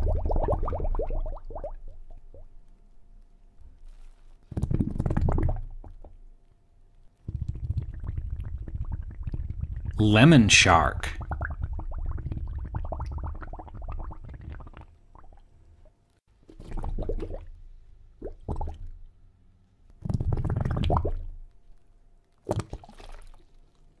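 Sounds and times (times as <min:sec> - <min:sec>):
water bubbling and gurgling: 0:00.0 - 0:02.5, 0:04.6 - 0:06.2, 0:07.3 - 0:15.5, 0:16.5 - 0:17.6, 0:18.2 - 0:18.9, 0:20.0 - 0:21.4.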